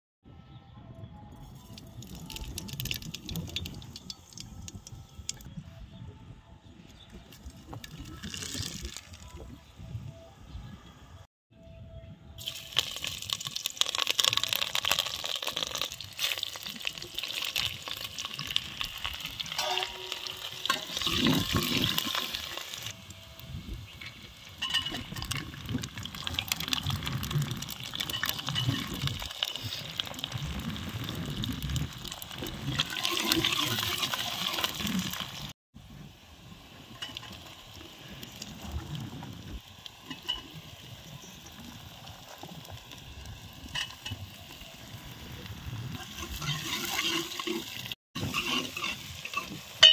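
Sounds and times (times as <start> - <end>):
food sizzling in hot oil: 12.4 - 49.9
ladle scraping and clinking pot: 19.5 - 22.3, 46.0 - 49.9.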